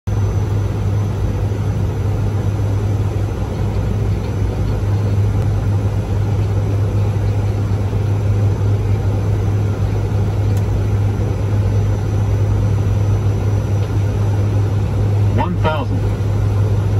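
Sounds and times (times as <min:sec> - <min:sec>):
turboprop engines droning: 0:00.1 - 0:16.9.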